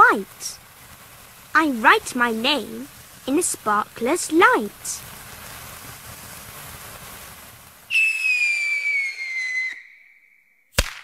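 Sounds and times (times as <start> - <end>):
sparkler fizzing hiss: 0.0 - 10.0
firework whistle falling: 7.9 - 11.0.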